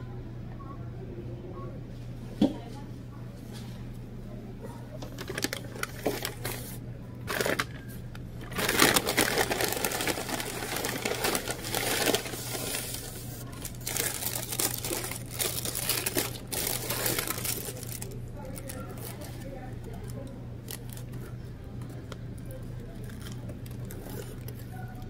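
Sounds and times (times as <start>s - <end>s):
steady low hum: 0.0s - 25.0s
paper bag crinkling: 5.1s - 20.0s.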